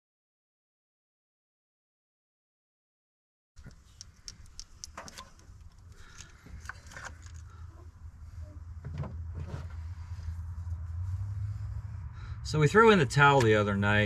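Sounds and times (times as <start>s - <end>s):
tools clicking and rattling: 3.6s - 7.5s
low rumble: 6.6s - 14.0s.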